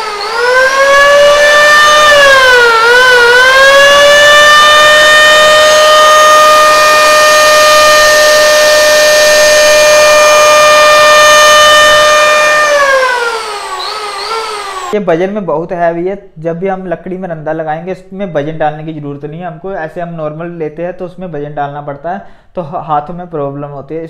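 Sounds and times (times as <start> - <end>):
electric hand planer whining: 0.0 - 15.0.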